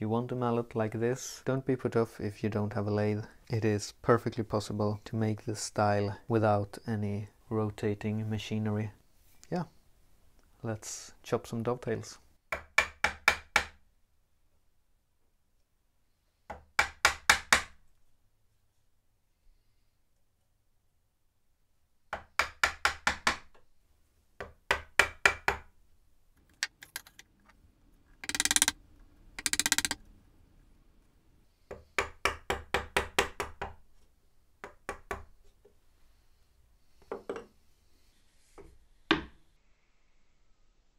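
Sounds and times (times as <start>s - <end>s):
wooden mallet tapping chisel: 12.5s - 13.8s, 16.5s - 17.8s, 22.1s - 23.6s, 24.4s - 25.7s, 28.2s - 28.8s, 29.4s - 30.0s, 31.7s - 33.8s, 34.6s - 35.3s
short rasping bursts: 28.2s - 28.8s, 29.4s - 30.0s.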